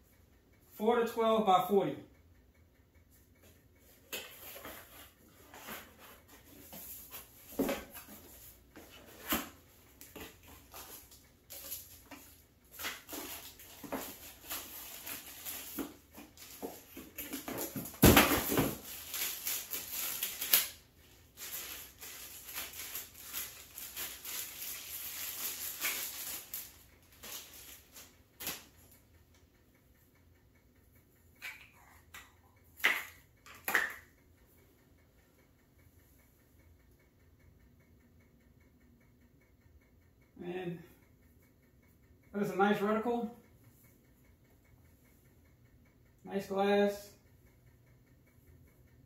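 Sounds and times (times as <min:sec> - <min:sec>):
packaging rustling: 0:10.1 - 0:28.6.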